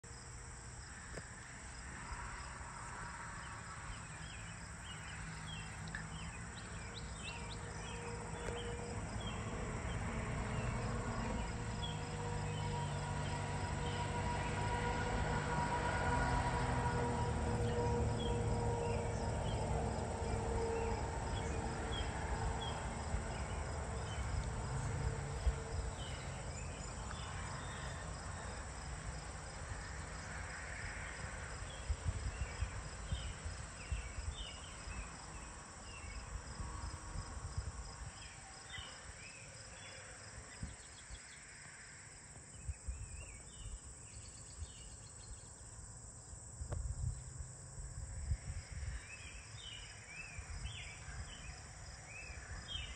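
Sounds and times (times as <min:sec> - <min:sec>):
crickets trilling: 0:00.1 - 0:52.9
distant low droning rumble: 0:04.1 - 0:30.2.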